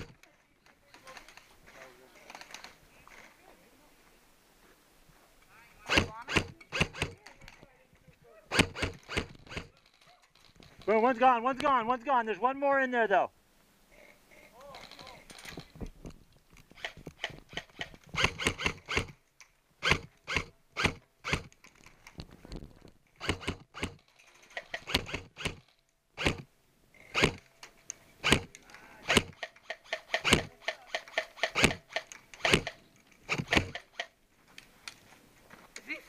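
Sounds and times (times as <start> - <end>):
airsoft gunfire: 5.9 - 7.2, 8.5 - 9.7, 28.2 - 28.5, 29.1 - 34.0.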